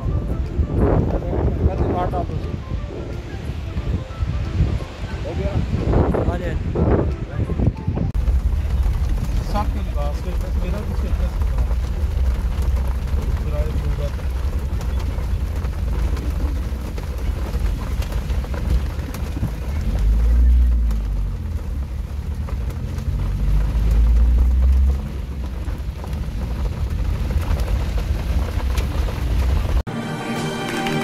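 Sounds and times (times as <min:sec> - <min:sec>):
music: 0:00.0 - 0:08.2, 0:29.9 - 0:31.0
road and engine rumble: 0:00.0 - 0:31.0
rain on car windscreen: 0:08.1 - 0:29.9.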